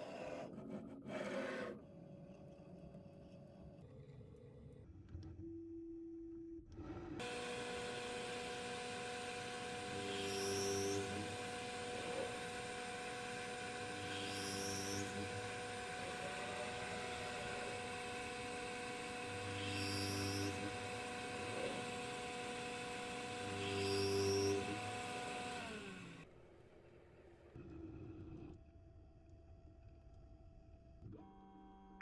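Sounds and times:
cnc mill whirring: 0:07.2 - 0:26.3
spindle whine: 0:07.2 - 0:26.3.

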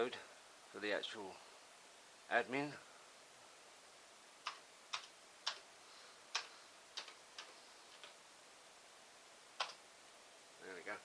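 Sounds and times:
keyboard key clicks: 0:06.3 - 0:08.2.

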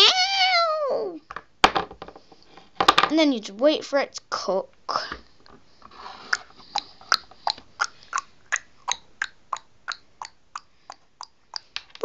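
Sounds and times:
tongue clicks: 0:06.3 - 0:12.0.

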